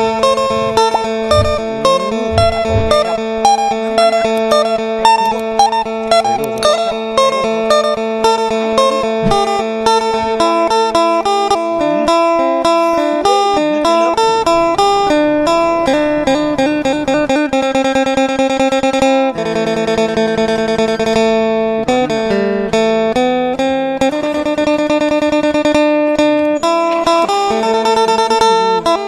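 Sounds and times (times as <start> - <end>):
plucked string instrument music: 0.0 - 29.0.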